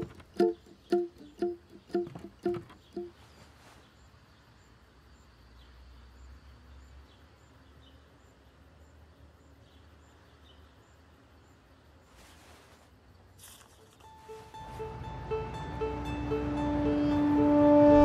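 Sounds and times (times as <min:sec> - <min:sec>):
low hum: 0:14.2 - 0:18.0.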